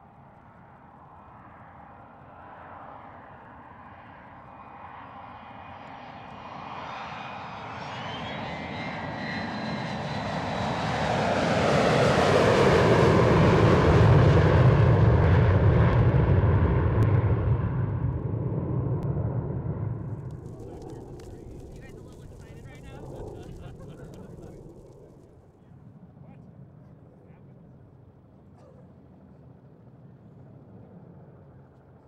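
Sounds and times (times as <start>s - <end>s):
airplane engine passing low: 0.0s - 32.0s.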